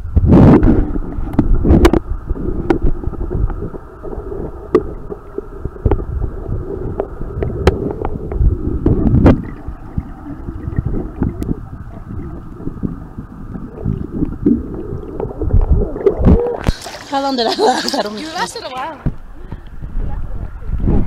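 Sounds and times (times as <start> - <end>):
muffled underwater rumble: 0.0 - 18.0, 19.0 - 21.0
underwater clicks and knocks: 4.4 - 6.2, 6.8 - 13.0.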